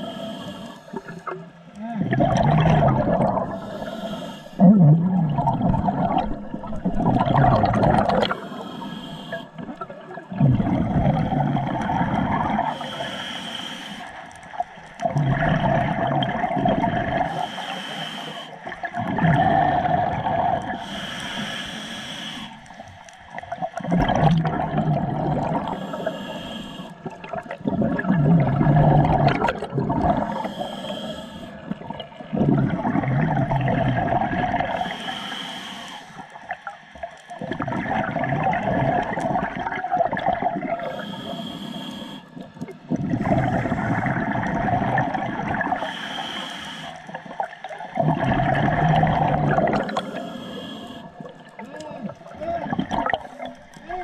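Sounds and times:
regulator inhalation hiss: 0:00.0 - 0:01.1, 0:03.5 - 0:04.6, 0:08.3 - 0:09.6, 0:12.7 - 0:14.2, 0:17.3 - 0:18.6, 0:20.8 - 0:22.9, 0:25.7 - 0:27.0, 0:30.2 - 0:31.8, 0:34.8 - 0:36.5, 0:40.8 - 0:42.4, 0:45.8 - 0:47.2, 0:49.8 - 0:51.2
exhaust bubbles gurgling: 0:00.9 - 0:08.6, 0:09.4 - 0:12.9, 0:14.5 - 0:17.4, 0:18.6 - 0:21.0, 0:23.3 - 0:26.1, 0:26.9 - 0:34.9, 0:37.4 - 0:41.1, 0:42.4 - 0:45.9, 0:47.1 - 0:50.2, 0:51.0 - 0:54.0.

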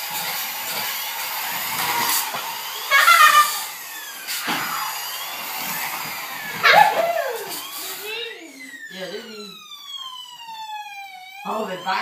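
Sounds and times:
toy engine drone: 0:00.0 - 0:12.0
toy siren wailing: 0:02.7 - 0:05.4, 0:06.3 - 0:12.0
short vocal cries: 0:02.9 - 0:03.7.

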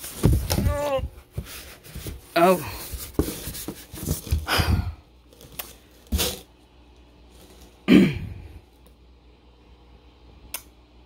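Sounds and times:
cardboard box being handled: 0:00.0 - 0:04.5
person grunting with effort: 0:00.5 - 0:01.2, 0:07.9 - 0:08.5.

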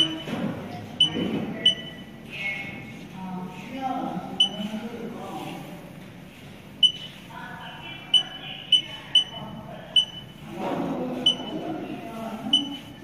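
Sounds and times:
short high beeps: 0:01.0 - 0:02.1, 0:06.8 - 0:07.1, 0:10.0 - 0:10.3, 0:11.3 - 0:11.5.

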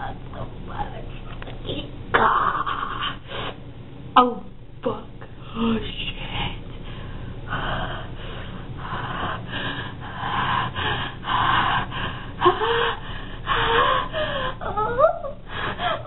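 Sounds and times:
person whimpering: 0:12.4 - 0:16.0.

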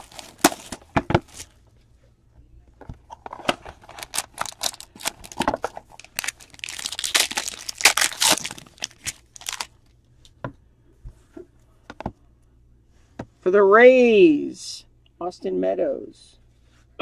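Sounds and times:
wrapper tearing and crinkling: 0:00.0 - 0:01.5, 0:03.7 - 0:09.8.

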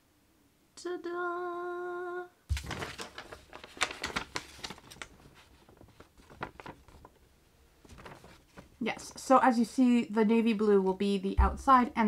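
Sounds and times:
paper rustling and crackling: 0:02.5 - 0:09.2.

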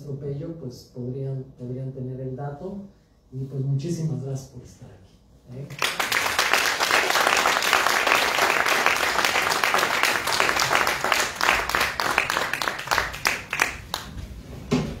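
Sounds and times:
audience applauding: 0:05.7 - 0:14.2.

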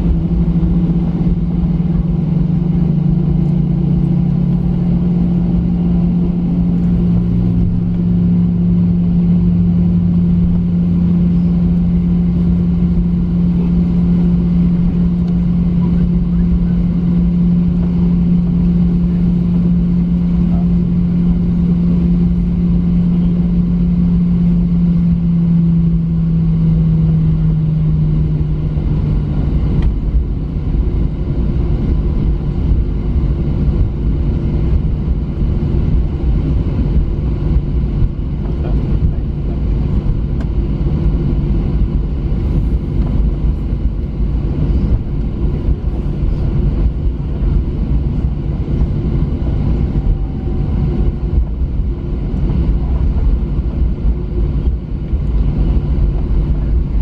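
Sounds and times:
jet engines idling in cabin: 0:00.0 - 0:57.0
low hum: 0:00.0 - 0:57.0.

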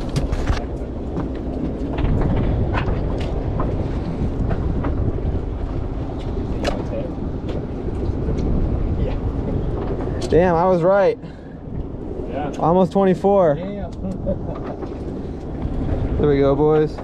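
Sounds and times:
knocks and clicks handling fish: 0:00.0 - 0:03.8
wind buffeting microphone: 0:00.0 - 0:17.0.

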